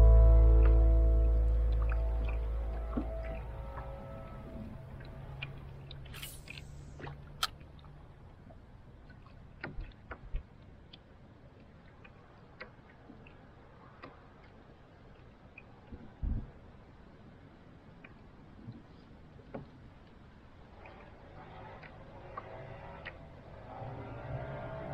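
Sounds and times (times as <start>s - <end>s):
low hum: 0.0s - 8.6s.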